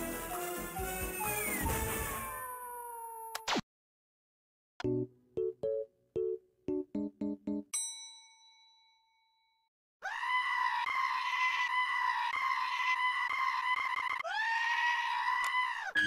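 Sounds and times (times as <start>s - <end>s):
long high-pitched scream: 0.3s - 3.4s, 10.0s - 16.0s
bell-like ding: 7.8s - 9.6s.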